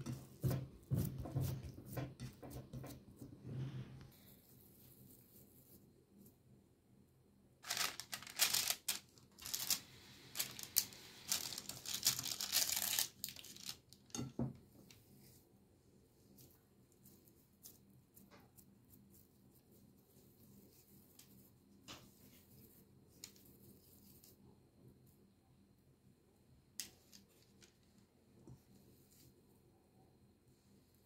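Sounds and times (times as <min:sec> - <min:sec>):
baking paper crinkling: 0:07.6 - 0:14.3.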